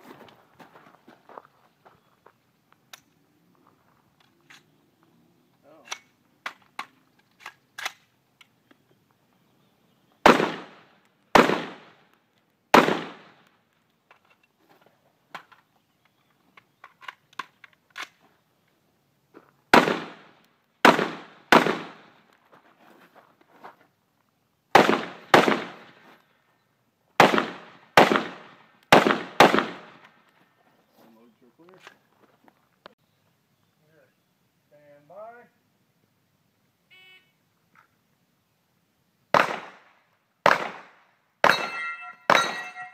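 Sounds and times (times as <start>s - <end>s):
rifle shots with echo: 10.2s - 12.0s, 12.7s - 13.4s, 19.7s - 22.2s, 24.8s - 26.0s, 27.2s - 30.0s, 39.3s - 42.9s.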